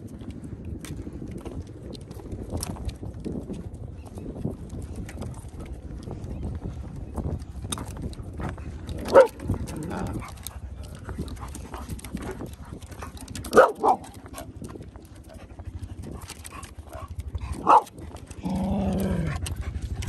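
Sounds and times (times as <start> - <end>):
footsteps on wooden boardwalk: 0.0 - 20.0
dog barking: 9.1 - 9.4, 13.5 - 14.1, 17.6 - 17.9.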